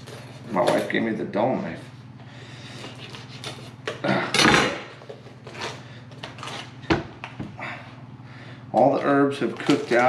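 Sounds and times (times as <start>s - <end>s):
knife scraping hard fish shell: 2.7s - 4.0s.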